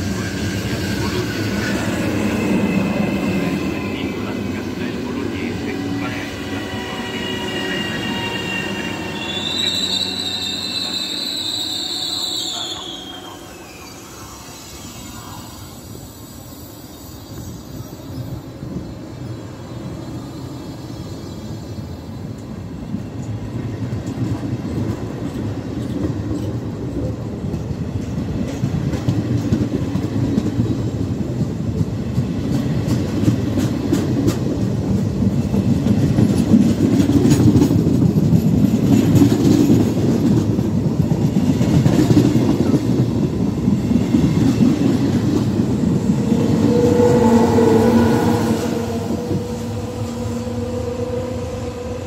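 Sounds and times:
electric locomotive whine: 0.0s - 52.0s
train wheels clicking over rail joints: 22.3s - 47.1s.

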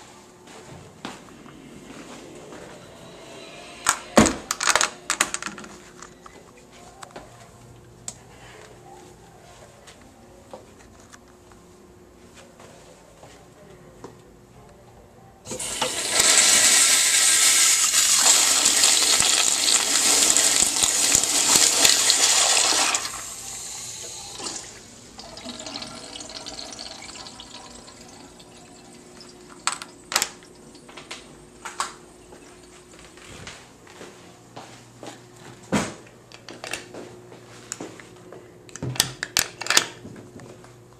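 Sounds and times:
toilet flushing: 15.5s - 32.8s
water trickling: 24.4s - 30.8s.

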